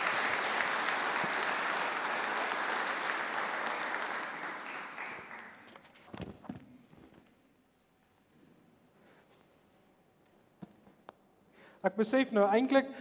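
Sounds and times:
congregation applauding: 0.0 - 6.0.

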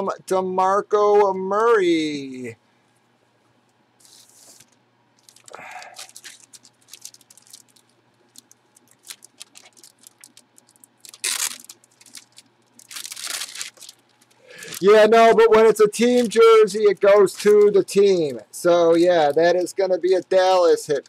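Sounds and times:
plastic bag crinkling: 4.0 - 21.0.

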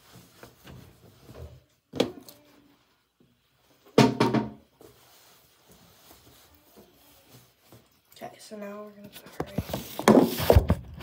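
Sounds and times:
knocks and thumps: 4.0 - 4.6.

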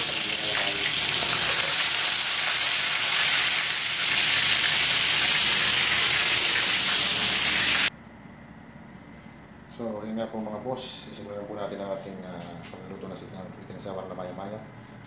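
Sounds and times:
fish frying in hot oil: 0.0 - 7.9.

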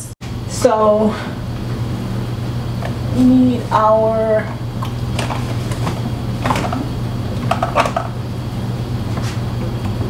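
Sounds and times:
steady low hum: 0.0 - 10.0
kitchen containers clicking and knocking: 7.4 - 8.2.

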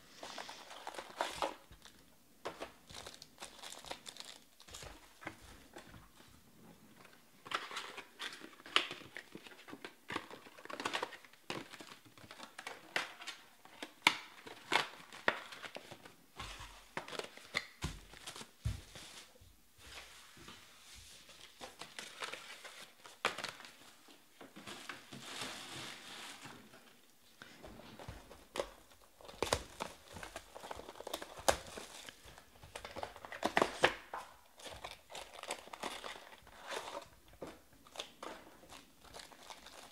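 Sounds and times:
card wrappers crinkling and tearing: 0.2 - 2.0, 2.6 - 5.0, 28.0 - 37.1, 37.8 - 39.9.

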